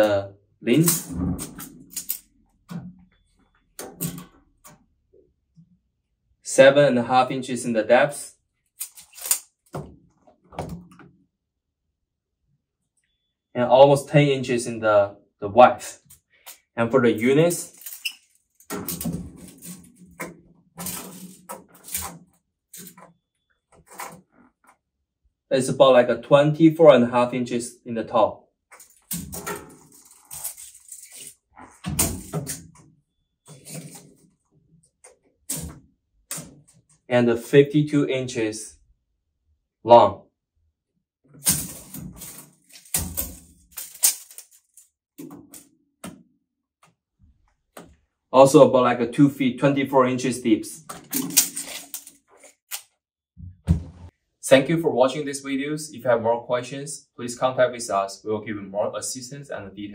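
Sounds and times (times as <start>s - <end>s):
steel tape measure scraping and rattling: 0.8s - 2.3s, 8.8s - 9.5s, 17.6s - 20.0s, 20.8s - 22.2s, 28.8s - 31.5s, 41.4s - 44.9s, 51.1s - 52.9s
tape measure scrapes and clicks: 1.9s - 2.2s, 8.8s - 9.5s, 29.9s - 31.4s, 43.7s - 44.9s.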